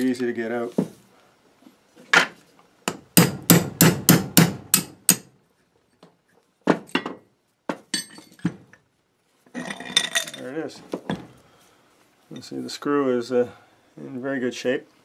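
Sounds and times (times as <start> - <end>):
hammer striking a punch: 2.9 - 5.3.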